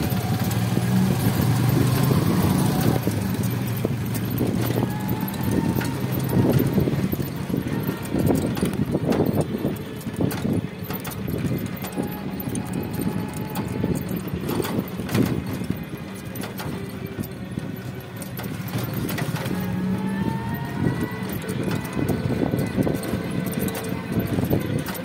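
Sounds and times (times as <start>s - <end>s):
cart wheels rumbling: 0.0s - 25.0s
hooves clip-clopping on pavement: 0.0s - 25.0s.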